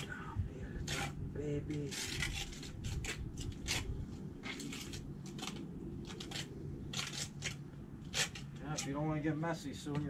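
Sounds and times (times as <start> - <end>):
cement scraping on stone: 0.8 - 9.2.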